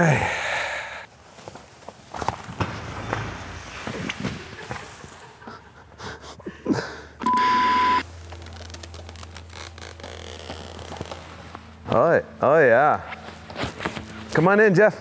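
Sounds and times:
censor bleep: 7.2 - 8.0
hammock rustling and creaking: 8.0 - 14.4.

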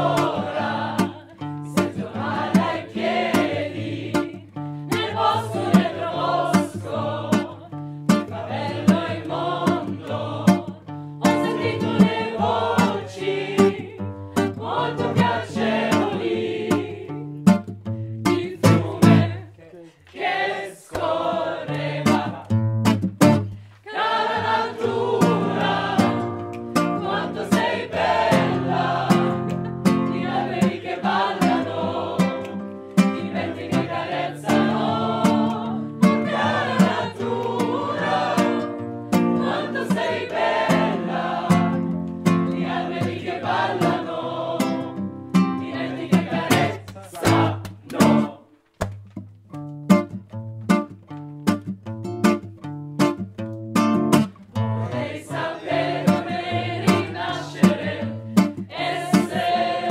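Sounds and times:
group of people singing: 0.0 - 17.6, 18.2 - 22.6, 23.8 - 48.6, 54.6 - 59.9
plucked acoustic guitar: 0.0 - 20.0, 20.9 - 59.9.

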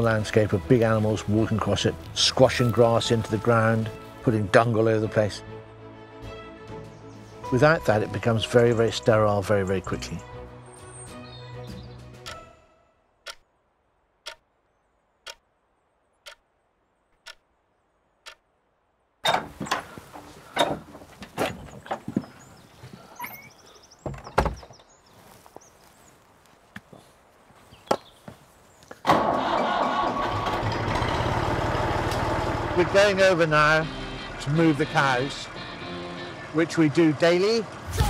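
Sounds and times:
clock-like sharp ticks: 12.2 - 12.5, 13.2 - 13.5, 14.2 - 14.5, 15.2 - 15.5, 16.2 - 16.5, 17.2 - 17.5, 18.2 - 18.5
wooden door opening and shutting: 19.2 - 22.4, 23.2 - 24.9
footsteps: 25.1 - 29.0
vehicle engine starting and running: 29.0 - 38.0.

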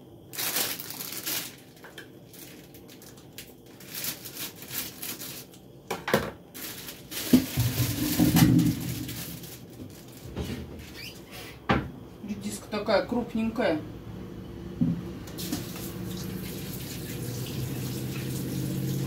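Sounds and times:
rustling and crinkling: 0.3 - 5.6, 6.4 - 11.3.

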